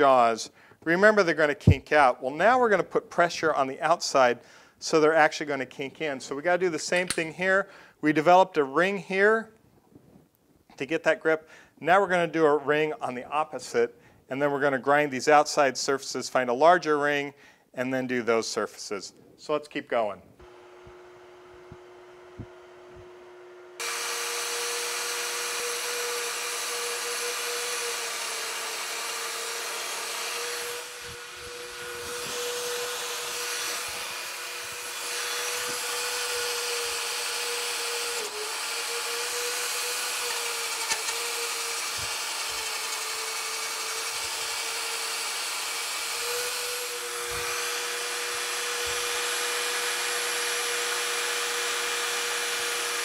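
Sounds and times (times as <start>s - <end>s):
die grinder whining: 20.4s - 53.0s.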